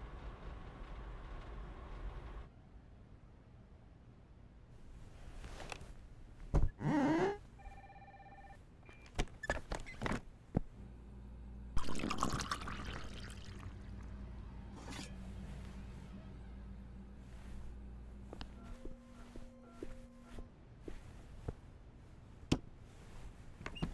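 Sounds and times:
low hum: 10.6s - 21.4s
noisy liquid-like rush: 11.8s - 14.1s.

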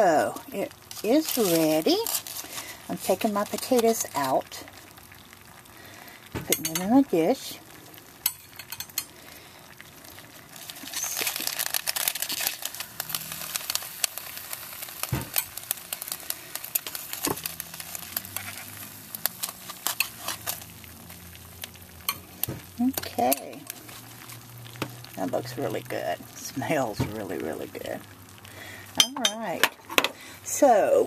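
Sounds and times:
dense crackling: 0.0s - 31.0s
metal spatula scraping foil: 0.6s - 4.4s, 10.6s - 24.5s.

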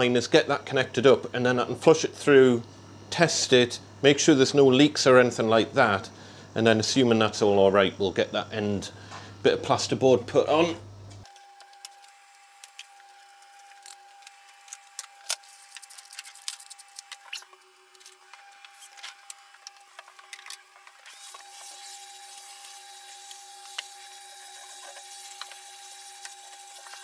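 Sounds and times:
vacuum cleaner humming: 16.8s - 27.0s.

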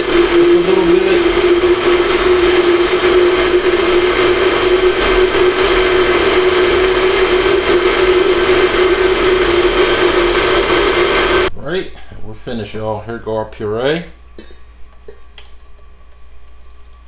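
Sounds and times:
blender motor running: 0.0s - 11.5s.

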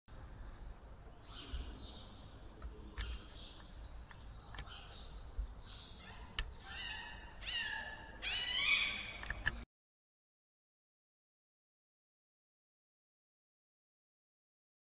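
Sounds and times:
cats yowling: 6.0s - 9.1s
sharp clicks: 9.2s - 9.6s.

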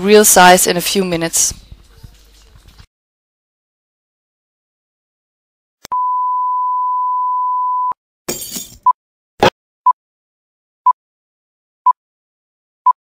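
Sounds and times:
short beeps: 5.9s - 8.0s.

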